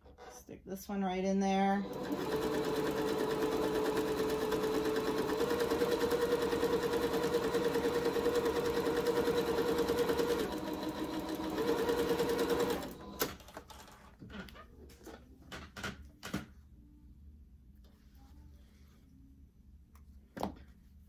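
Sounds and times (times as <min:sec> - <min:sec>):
sewing machine stitching: 0:01.8 - 0:14.0.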